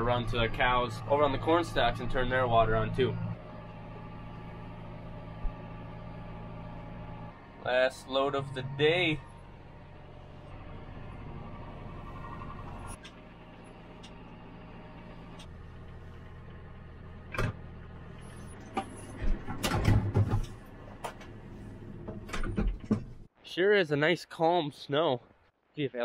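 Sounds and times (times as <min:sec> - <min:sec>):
tractor engine running: 0:00.0 - 0:23.3
loud clunks and rattles: 0:18.6 - 0:23.3.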